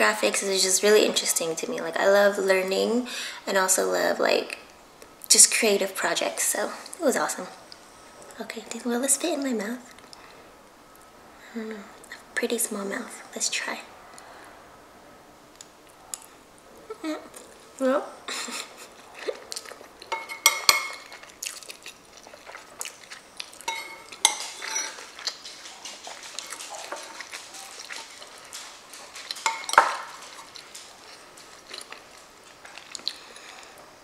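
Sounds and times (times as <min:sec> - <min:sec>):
chewing and mouth smacking: 0:18.8 - 0:33.9
spoon clinking against bowl: 0:23.7 - 0:25.1, 0:29.4 - 0:30.2.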